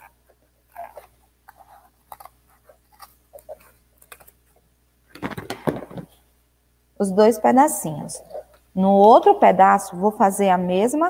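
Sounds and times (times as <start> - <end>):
scissors cutting cardboard: 0.0 - 4.4.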